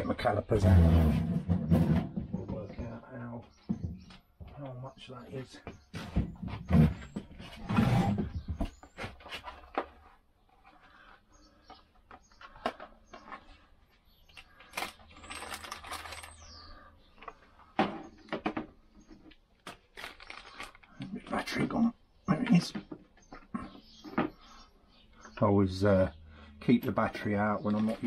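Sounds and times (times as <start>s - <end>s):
rustling or scraping: 0.6s - 2.6s, 6.0s - 11.2s, 14.6s - 18.2s.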